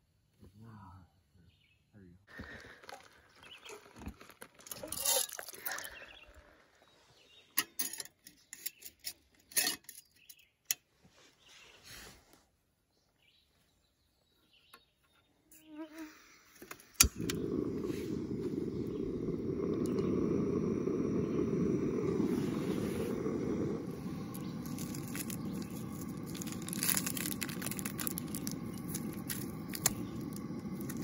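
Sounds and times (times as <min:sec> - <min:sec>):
sharp igniter click: 0:16.7 - 0:22.2, 0:26.9 - 0:31.0
gas burner rushing: 0:16.7 - 0:31.0.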